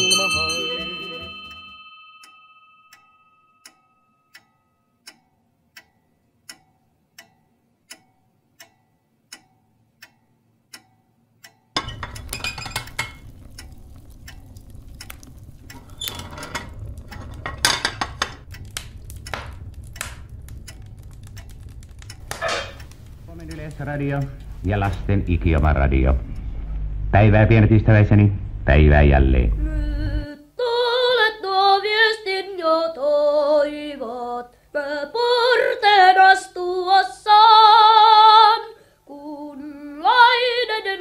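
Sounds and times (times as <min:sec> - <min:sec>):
clock ticking: 0:02.2 - 0:25.8
wood fire crackling and popping: 0:11.8 - 0:26.9.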